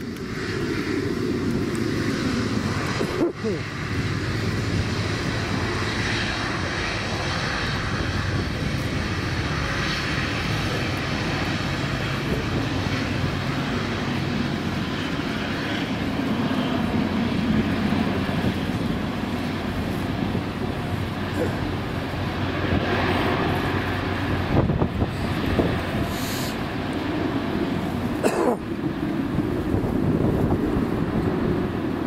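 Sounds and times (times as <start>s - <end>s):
turboprop engines droning: 0.0s - 32.0s.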